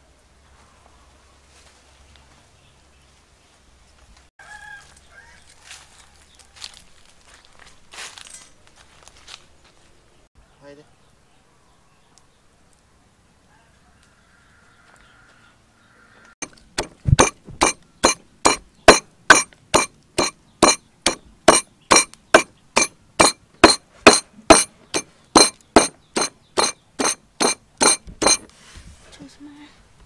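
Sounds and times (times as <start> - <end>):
pestle pounding in wooden mortar: 16.4 - 28.5.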